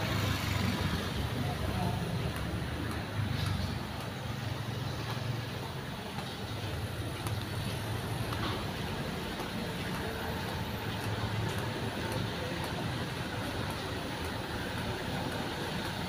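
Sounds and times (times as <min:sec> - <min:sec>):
traffic engines and tyre noise: 0:00.0 - 0:16.0.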